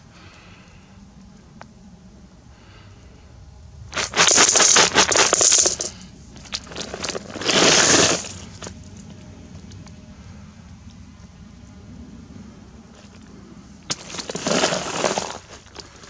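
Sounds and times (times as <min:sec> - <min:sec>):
coins clattering into metal bucket: 0:03.9 - 0:06.0
coins clinking: 0:04.0 - 0:06.0.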